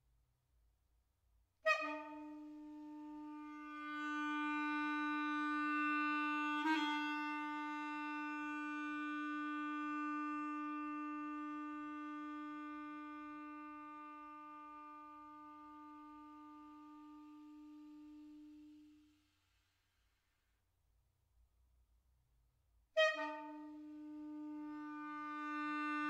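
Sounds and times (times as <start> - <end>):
clarinet long held note: 1.6 - 19.2, 23.0 - 26.0.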